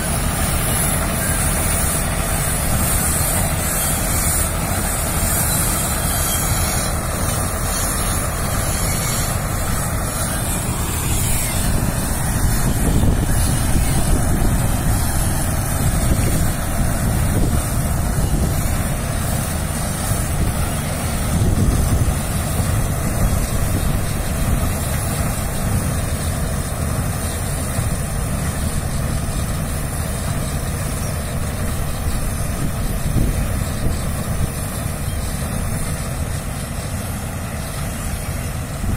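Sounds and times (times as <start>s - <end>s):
tractor diesel engine running: 0.0s - 38.9s.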